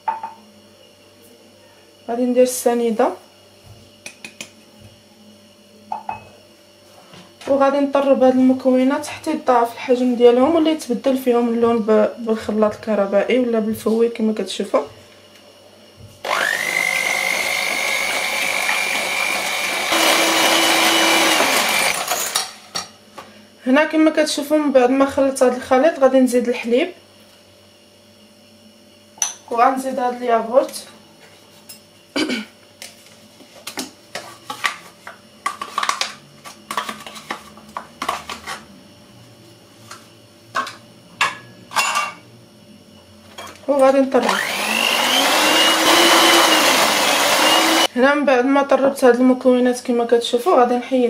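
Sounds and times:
electric hand mixer whining: 0:16.2 - 0:22.4, 0:44.2 - 0:47.9.

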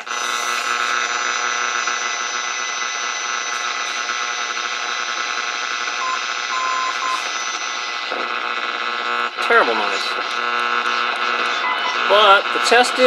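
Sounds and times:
buzzing radio interference with hum tones: 0:00.0 - 0:13.0
morse beacon beep: 0:06.0 - 0:07.2.

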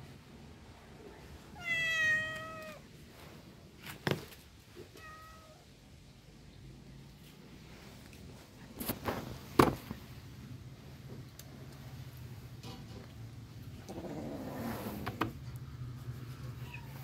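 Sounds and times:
cat meowing: 0:01.6 - 0:02.8, 0:04.9 - 0:05.7.

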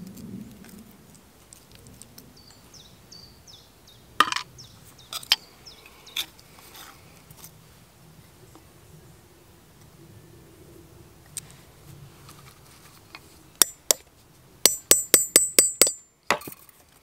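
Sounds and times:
bird chirping: 0:02.2 - 0:06.3
small hammer knocking on copper: 0:14.7 - 0:16.5.

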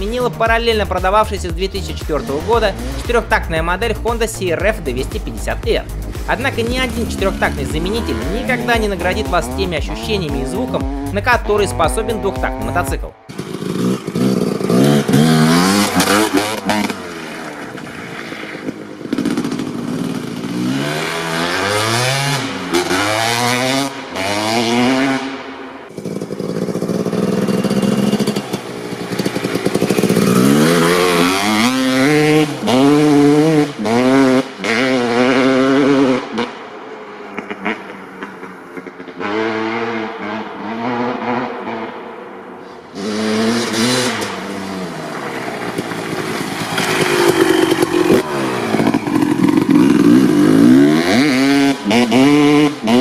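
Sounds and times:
motocross bike accelerating: 0:00.0 - 0:53.0.

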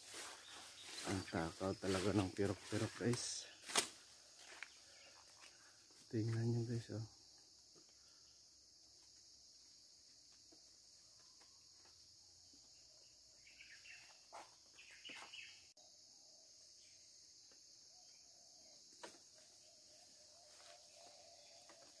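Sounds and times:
rustles: 0:00.0 - 0:06.6
crickets droning: 0:00.0 - 0:22.0.

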